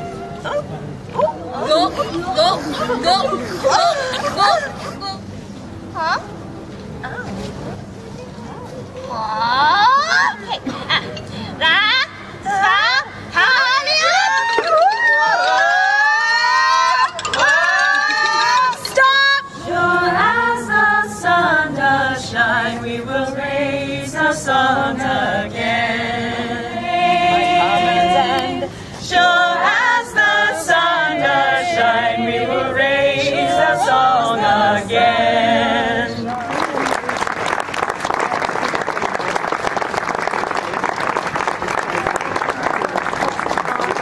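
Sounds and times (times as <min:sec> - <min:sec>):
unaccompanied singing: 0:13.4 - 0:36.5
audience applause: 0:36.3 - 0:44.0.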